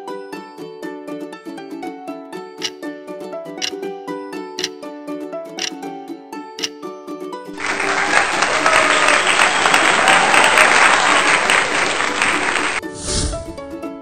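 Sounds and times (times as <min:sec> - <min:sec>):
light background music: 0:00.0 - 0:07.5, 0:12.8 - 0:14.0
applause: 0:07.6 - 0:12.8.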